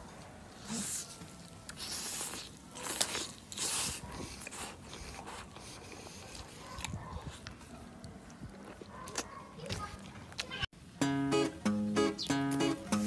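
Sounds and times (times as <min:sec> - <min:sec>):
person chewing: 0:00.7 - 0:09.4
crunchy bites: 0:01.4 - 0:05.4.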